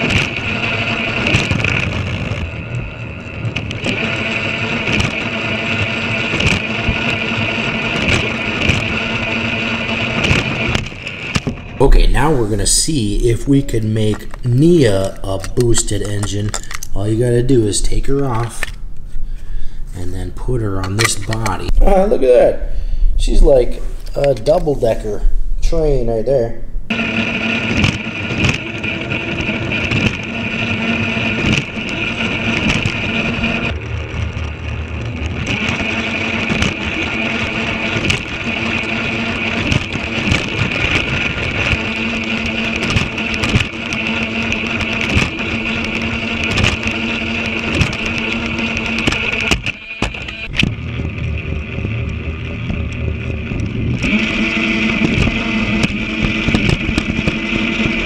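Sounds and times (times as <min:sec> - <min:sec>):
wheels clicking over plastic track: 0:00.0 - 0:11.6, 0:13.4 - 0:17.2, 0:27.6 - 0:49.6
toy train motor whining: 0:00.0 - 0:18.8, 0:26.9 - 0:58.0.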